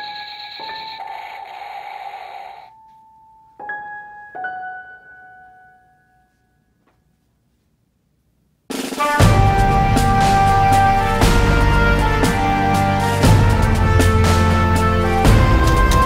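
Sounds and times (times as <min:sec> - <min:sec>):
chime-like electronic notes: 0:00.0 - 0:01.6.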